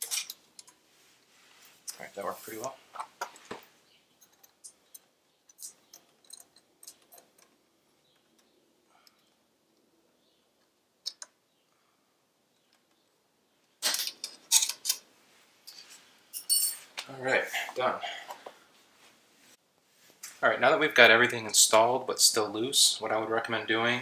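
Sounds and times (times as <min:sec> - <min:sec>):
metal clicks and clinks: 0:04.2 - 0:07.5.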